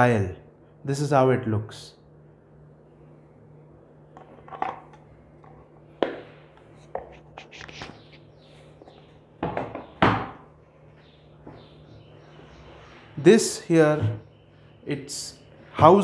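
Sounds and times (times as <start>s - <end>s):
wooden box knocking and clattering: 9.4s - 10.4s.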